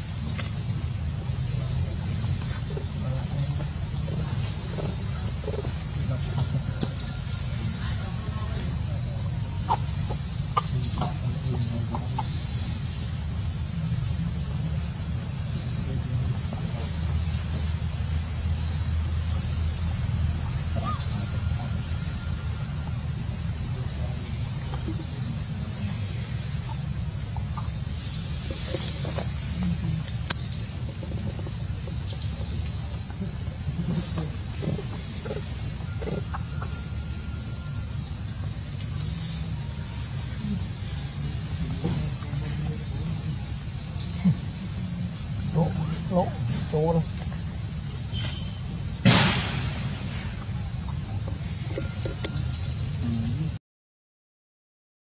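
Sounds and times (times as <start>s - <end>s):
faint chirps: 0.0s - 53.6s
high-pitched insect drone: 0.0s - 53.6s
sudden rush of noise: 47.7s - 51.3s.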